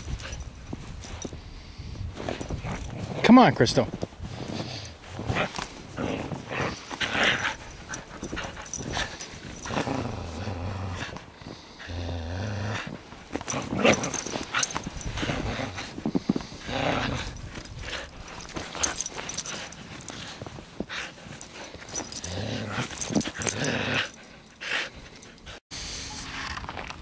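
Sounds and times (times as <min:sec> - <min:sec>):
dog growling in play: 0:04.3 - 0:25.6.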